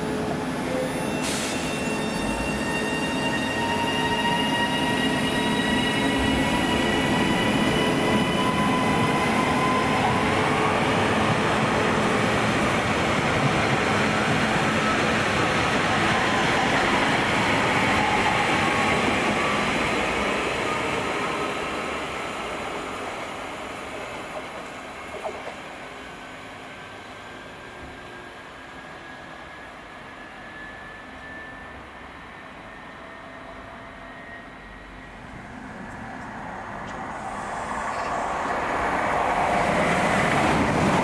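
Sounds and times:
train wheels rushing on rail: 0:00.0 - 0:28.3
train whine: 0:00.0 - 0:41.0.

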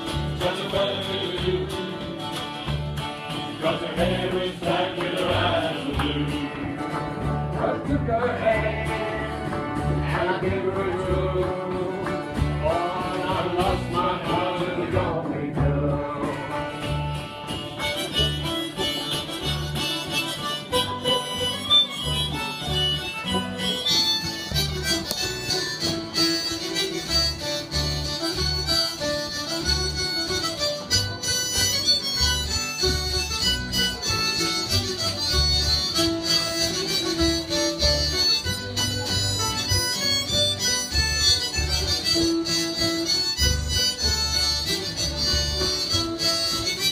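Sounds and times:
acoustic guitars: 0:00.0 - 0:46.9
plucked double bass: 0:00.0 - 0:46.9
person singing: 0:03.6 - 0:16.8
instrumental melody: 0:16.4 - 0:46.9.

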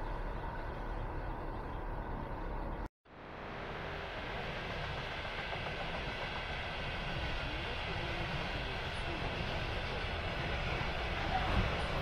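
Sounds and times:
freight train wheels rumbling on rails: 0:03.5 - 0:12.0.

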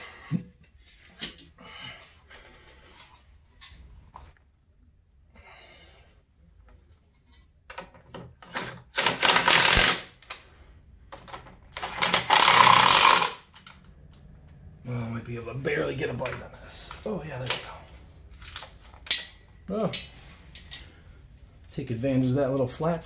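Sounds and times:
impact driver hammering rattle: 0:08.9 - 0:10.1.

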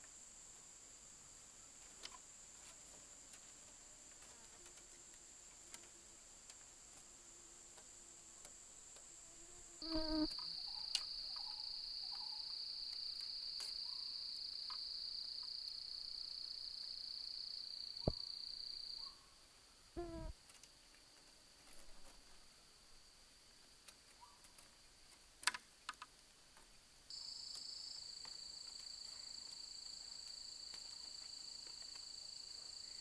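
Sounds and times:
insects droning: 0:00.0 - 0:25.0, 0:27.1 - 0:33.0
bamboo strips ticking: 0:23.9 - 0:26.7.

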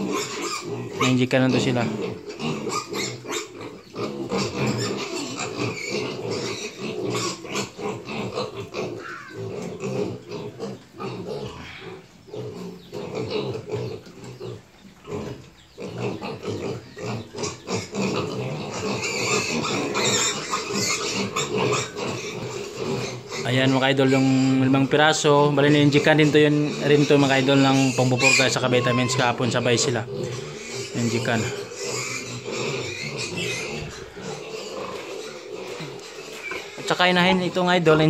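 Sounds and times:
piglets grunting and squealing: 0:00.0 - 0:38.0.

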